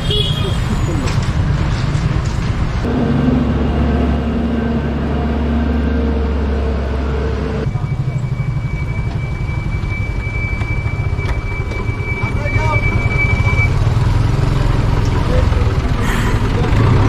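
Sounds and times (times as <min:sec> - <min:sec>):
crane engine running: 0:01.7 - 0:17.0
high-pitched whine: 0:02.8 - 0:14.4.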